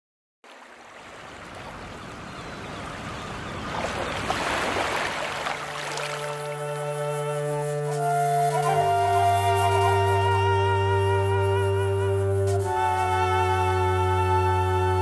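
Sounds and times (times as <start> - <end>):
waves washing onto beach: 0.5 - 7.1
wind instrument held notes: 5.6 - 15.0.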